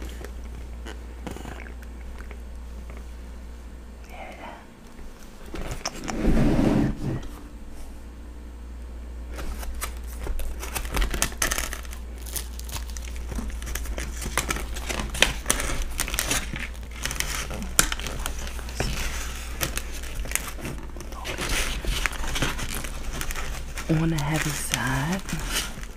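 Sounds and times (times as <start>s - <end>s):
steady low hum: 0.0s - 25.9s
bread roll crackling: 9.2s - 25.9s.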